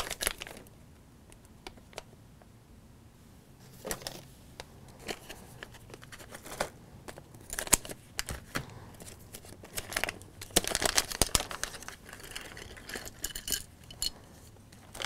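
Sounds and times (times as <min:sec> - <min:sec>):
plastic packet crinkling and tearing: 0:00.0 - 0:00.7, 0:07.4 - 0:13.6, 0:14.8 - 0:15.0.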